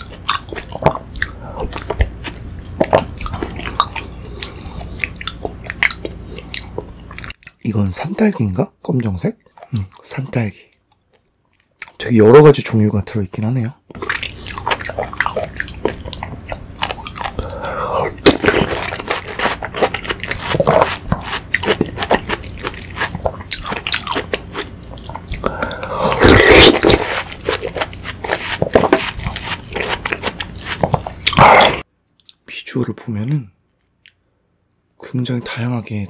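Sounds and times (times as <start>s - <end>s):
wet chewing and smacks: 0.0s - 7.7s, 13.9s - 17.6s, 18.2s - 31.4s.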